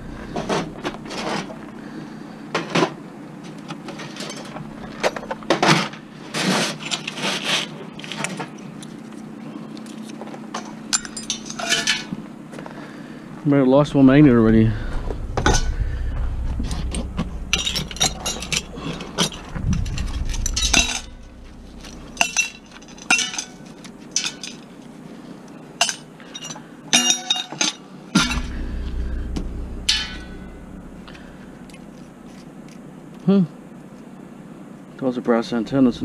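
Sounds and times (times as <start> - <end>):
scrap metal clanking: 0.0 - 1.8, 11.0 - 12.2, 14.6 - 24.7, 25.8 - 32.4
low rumble: 0.0 - 2.4, 4.5 - 6.2, 13.8 - 24.6, 28.2 - 32.8.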